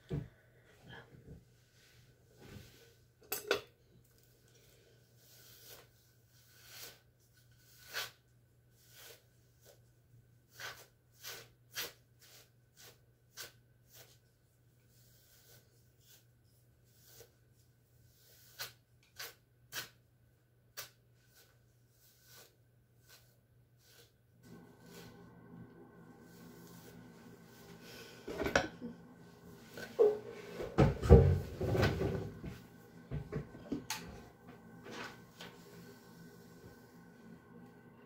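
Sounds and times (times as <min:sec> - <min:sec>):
hairbrush swishing through hair: 0:05.2 - 0:08.2, 0:20.8 - 0:25.3, 0:26.2 - 0:28.2.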